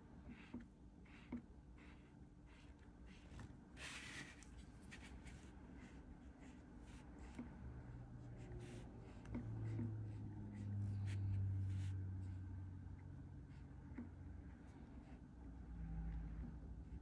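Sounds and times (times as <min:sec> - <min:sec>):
marker stroking on paper: 0:00.3 - 0:07.5, 0:08.2 - 0:12.4.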